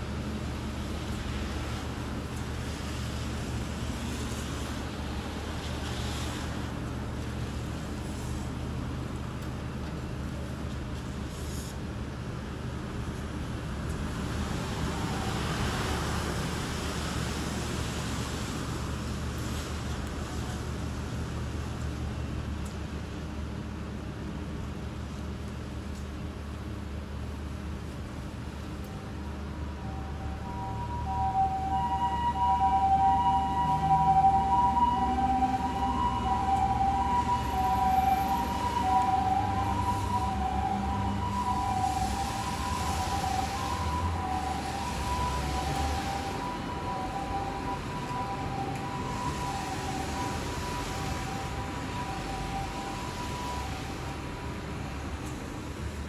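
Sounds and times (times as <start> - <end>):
truck tyres hissing on wet road: 0.0 - 56.0
two-tone ambulance siren: 14.5 - 16.4, 28.9 - 55.0.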